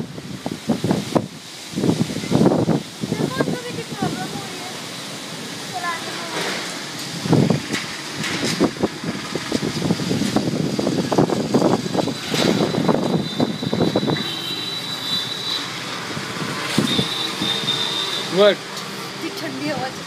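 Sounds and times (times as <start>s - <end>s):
wind gusting against microphone: 0.0s - 20.0s
thin high whistle: 12.7s - 15.7s.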